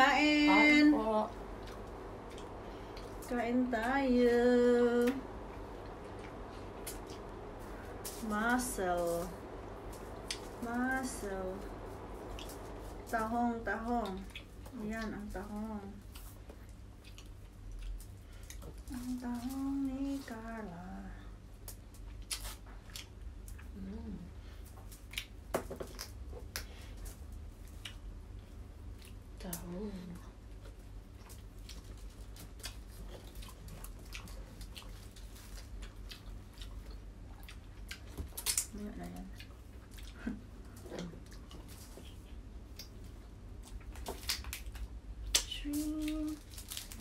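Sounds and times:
low steady hum: 0:00.0 - 0:47.0
wet chewing: 0:14.0 - 0:15.2, 0:16.0 - 0:18.9, 0:30.4 - 0:45.5
person humming: 0:23.6 - 0:24.4, 0:45.6 - 0:46.4.

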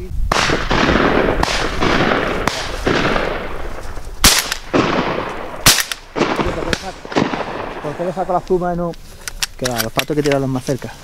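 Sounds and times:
shotgun shots echoing: 0:00.3 - 0:08.4.

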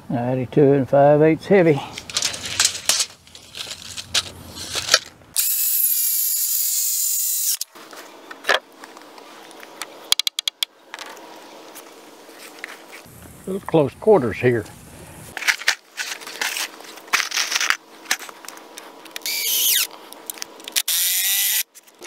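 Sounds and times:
handling knocks and clicks: 0:01.9 - 0:05.2
circular saw cutting timber: 0:05.4 - 0:07.7, 0:19.2 - 0:19.9.

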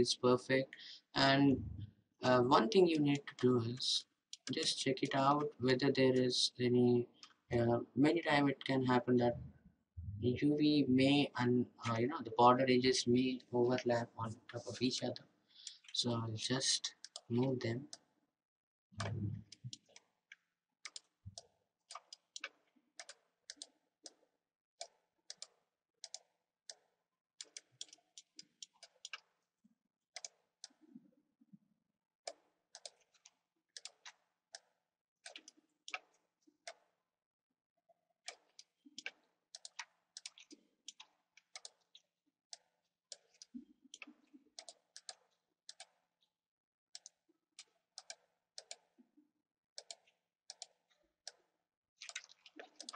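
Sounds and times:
computer mouse clicking: 0:19.0 - 0:24.2, 0:24.8 - 0:29.4, 0:30.2 - 0:30.8, 0:32.3 - 0:36.9, 0:38.2 - 0:46.0, 0:46.9 - 0:48.9, 0:49.8 - 0:52.9.

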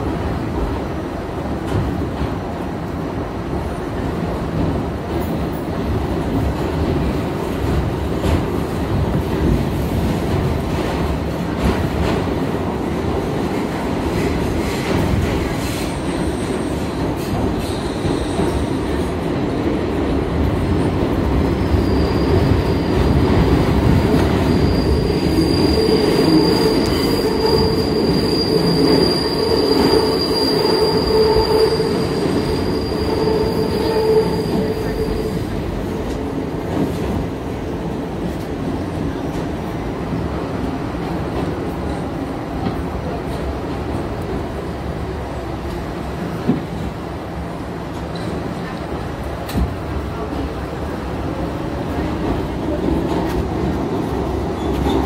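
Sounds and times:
train wheels rumbling on rails: 0:00.0 - 0:55.0
high thin wheel squeal: 0:24.4 - 0:35.3.

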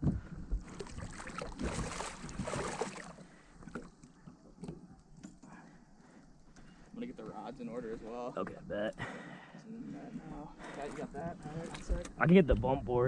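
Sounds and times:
water splashing and sloshing: 0:00.4 - 0:06.2, 0:10.3 - 0:12.6
water lapping: 0:00.6 - 0:04.7, 0:09.0 - 0:12.2.

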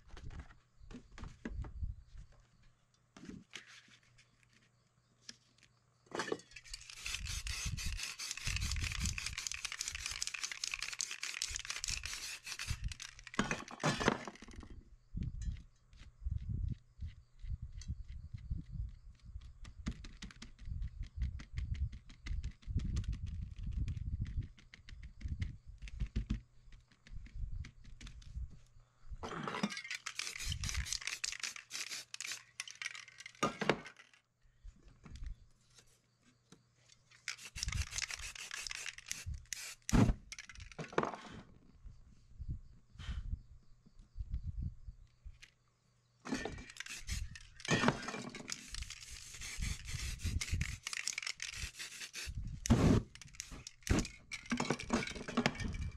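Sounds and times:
spray paint can hissing: 0:06.7 - 0:13.3, 0:30.0 - 0:33.0, 0:37.3 - 0:40.0, 0:46.7 - 0:47.6, 0:48.5 - 0:54.1.

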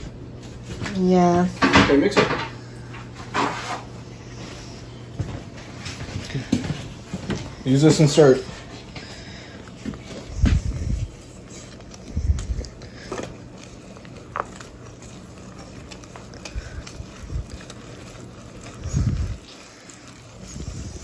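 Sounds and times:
whisk stirring batter in bowl: 0:05.6 - 0:21.0.

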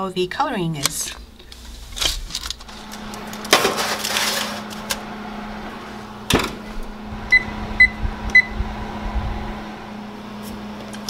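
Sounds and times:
steady low hum: 0:00.0 - 0:11.0
baking tray sliding onto oven rack: 0:01.6 - 0:06.8
short oven beeps: 0:07.3 - 0:08.6.

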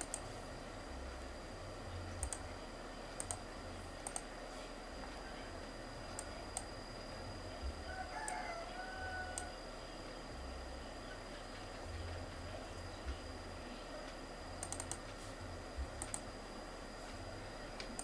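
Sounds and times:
computer mouse clicking: 0:00.0 - 0:00.4, 0:02.2 - 0:02.4, 0:03.2 - 0:04.3, 0:06.2 - 0:06.7, 0:09.3 - 0:09.5, 0:14.0 - 0:15.2, 0:16.0 - 0:16.3, 0:17.8 - 0:18.0
steady electrical hum: 0:00.0 - 0:18.0.

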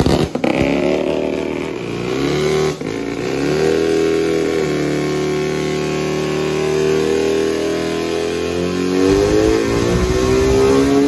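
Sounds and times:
van engine revving: 0:08.6 - 0:11.0.

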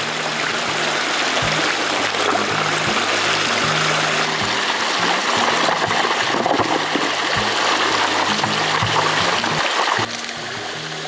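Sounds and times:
background music: 0:00.0 - 0:11.0
stream rushing over stones: 0:00.0 - 0:11.0.

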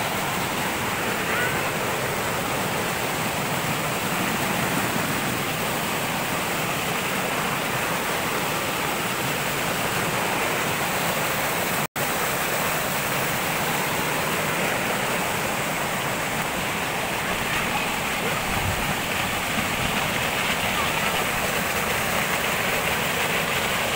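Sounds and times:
stream rushing over rocks: 0:00.0 - 0:23.9.

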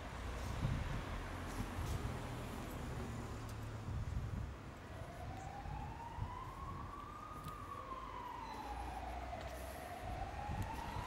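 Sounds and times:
siren wailing: 0:04.9 - 0:11.0.

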